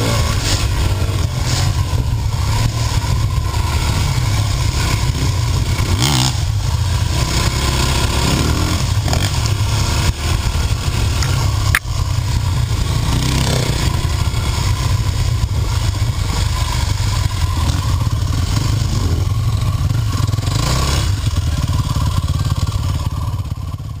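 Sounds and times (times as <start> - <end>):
dirt bike engine revving: 0.0 - 24.0
sharp click: 11.1 - 11.9.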